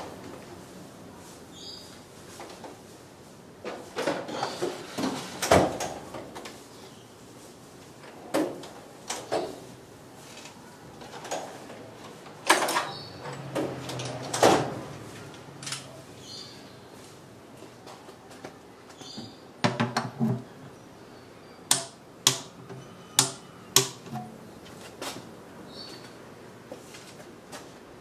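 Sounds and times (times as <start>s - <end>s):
hand tools knocking on metal: 21.7s - 22.6s, 23.2s - 24.3s.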